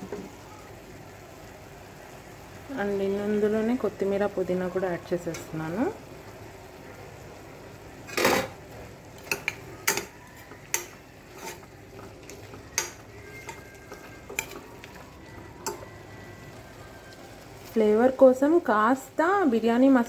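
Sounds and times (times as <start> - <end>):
faint sizzle of frying: 0.0 - 20.0
metal spoon scraping a pot: 9.3 - 15.0.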